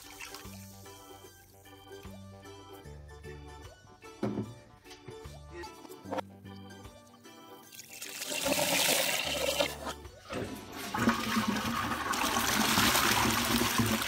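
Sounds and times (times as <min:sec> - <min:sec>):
toilet flushing: 0:07.8 - 0:14.0.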